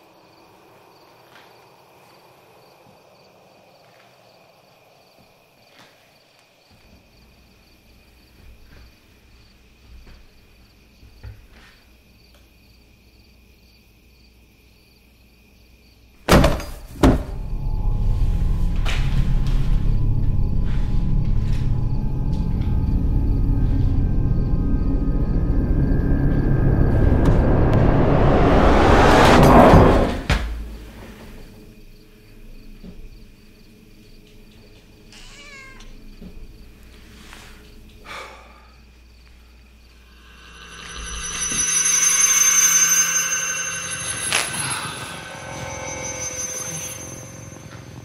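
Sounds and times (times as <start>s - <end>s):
faint crickets chirping: 0.0s - 28.2s, 30.6s - 48.0s
loud door bangs: 16.3s - 17.5s
low droning horror score: 17.2s - 31.8s, 37.9s - 48.0s
low hum: 17.2s - 31.8s, 39.9s - 48.0s
sharp hit: 17.3s - 31.0s, 40.0s - 48.0s
rush of noise: 17.4s - 31.1s, 40.0s - 48.0s
high wavering cry or creak: 35.1s - 36.0s, 40.0s - 48.0s.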